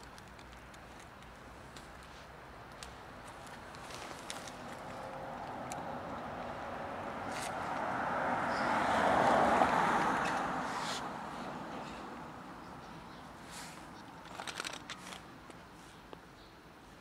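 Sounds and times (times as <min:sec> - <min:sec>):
car passing by: 0:04.5 - 0:12.8.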